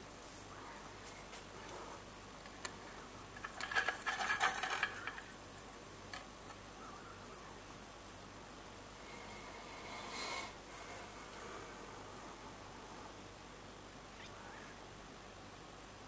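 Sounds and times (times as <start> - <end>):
faint steady hiss: 0.0 - 16.0
metal clinking and rattling: 2.2 - 6.7.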